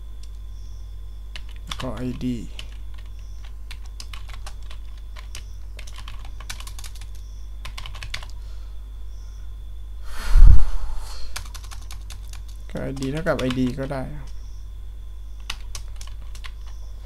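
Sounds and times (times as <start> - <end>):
low electrical hum: 0.0 - 17.0
keyboard typing: 1.3 - 8.4, 11.4 - 14.4, 15.4 - 16.8
loud low thump: 10.3 - 10.9.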